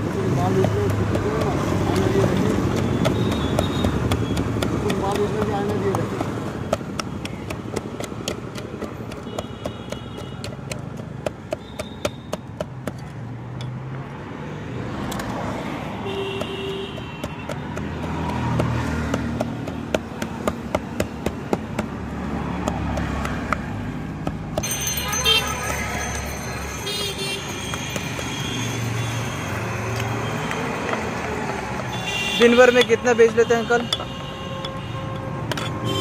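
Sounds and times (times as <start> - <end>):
traffic noise: 0.0 - 36.0
wooden pestle knocking steel bowl: 0.2 - 13.8, 16.2 - 26.8, 27.4 - 28.4.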